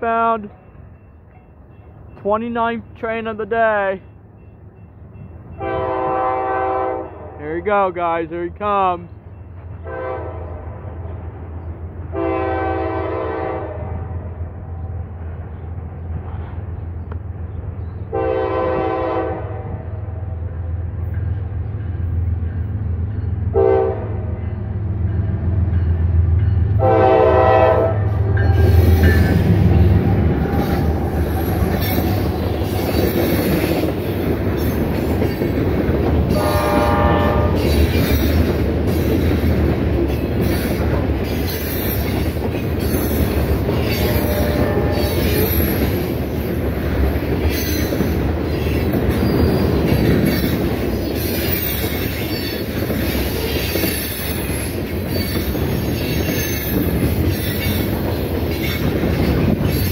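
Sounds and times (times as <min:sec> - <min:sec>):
train horn blasts: 0:05.6 - 0:07.4, 0:09.8 - 0:10.6, 0:12.1 - 0:14.4, 0:18.1 - 0:20.2, 0:23.5 - 0:24.5, 0:26.6 - 0:29.4, 0:36.3 - 0:37.8, 0:43.9 - 0:45.6
train cars clattering past: 0:08.9 - 0:59.9.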